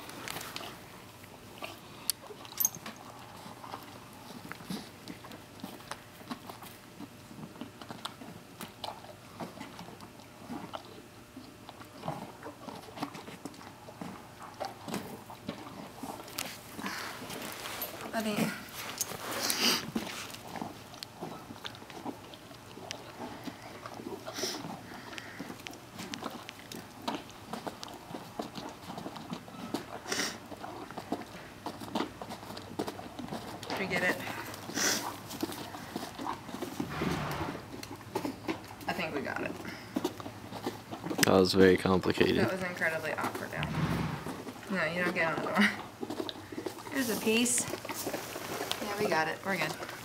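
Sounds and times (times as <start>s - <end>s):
horse chewing an apple: 0.0s - 50.0s
horse breathy burst: 34.5s - 35.2s, 36.8s - 37.6s, 43.6s - 44.5s.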